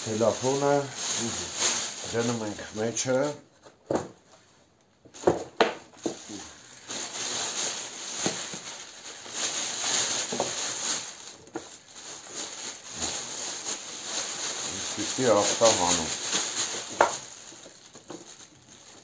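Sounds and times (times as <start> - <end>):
plastic bag rustling: 0.0 - 19.0.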